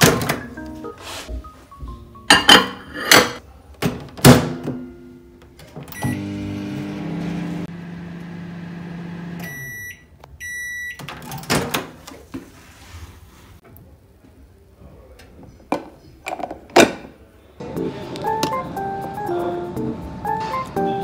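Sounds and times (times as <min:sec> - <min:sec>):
microwave humming: 0:05.8 - 0:10.2
microwave beeps: 0:05.9 - 0:07.5, 0:09.1 - 0:11.1.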